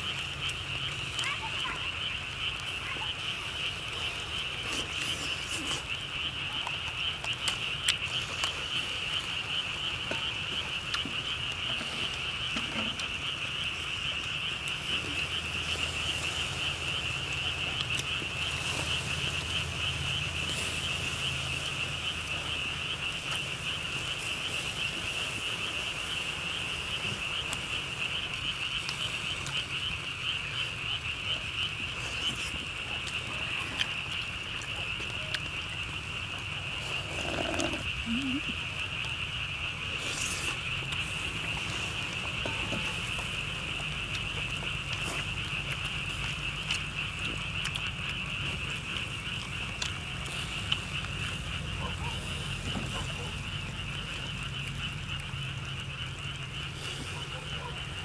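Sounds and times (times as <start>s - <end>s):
high-pitched animal trill chorus: 36.6s - 38.6s.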